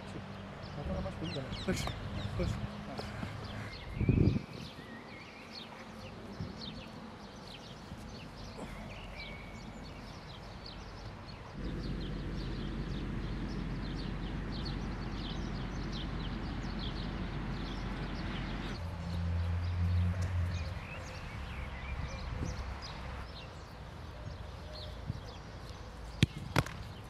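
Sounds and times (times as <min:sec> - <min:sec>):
small birds chirping: 0:00.0 - 0:27.0
low rumble: 0:11.6 - 0:18.7.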